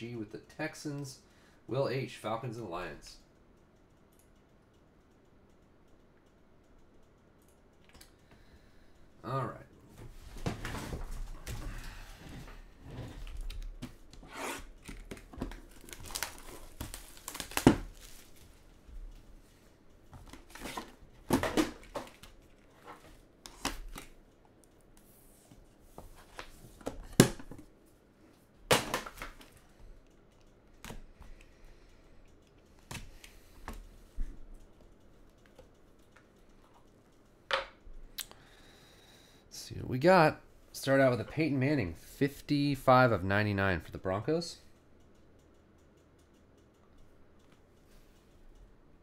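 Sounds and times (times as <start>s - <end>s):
cards handled with clicks and rustles: 13.2s - 31.6s, 32.5s - 36.9s
plastic wrap tearing and crumpling: 15.7s - 18.3s.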